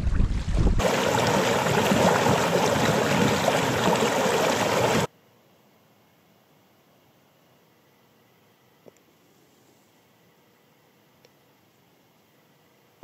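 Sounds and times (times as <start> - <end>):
wind buffeting microphone: 0.0 - 4.0
stream splashing over stones: 0.0 - 5.1.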